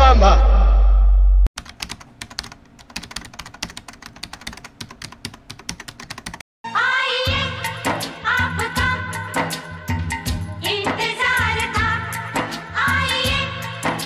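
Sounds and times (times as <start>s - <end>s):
computer keyboard typing: 1.6s - 6.4s
film song with singing: 6.6s - 14.0s.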